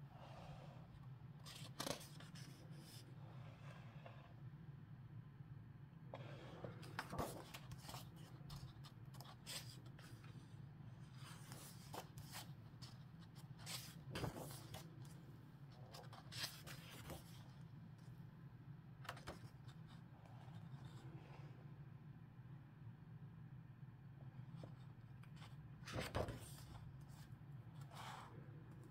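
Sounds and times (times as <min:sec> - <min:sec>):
book pages turning: 0:01.4 - 0:03.0, 0:06.2 - 0:15.1, 0:15.7 - 0:17.5, 0:24.6 - 0:27.2.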